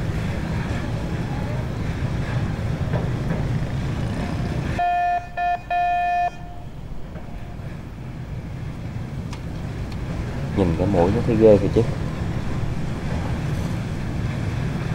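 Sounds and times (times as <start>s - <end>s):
horn toots: 4.8s - 7.6s.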